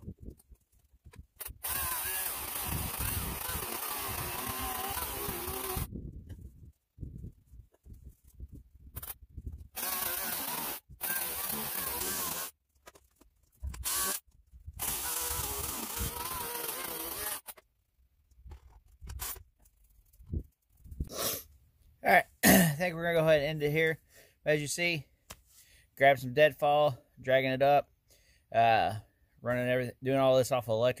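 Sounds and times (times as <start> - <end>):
electric chainsaw cutting wood: 1.4 - 5.9, 9.7 - 12.6, 13.8 - 14.2, 14.8 - 17.6.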